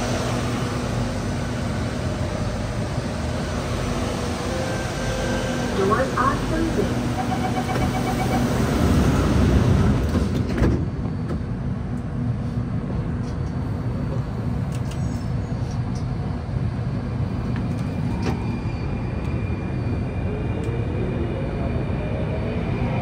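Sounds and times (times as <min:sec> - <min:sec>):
train low rumble and hum: 0:00.0 - 0:23.0.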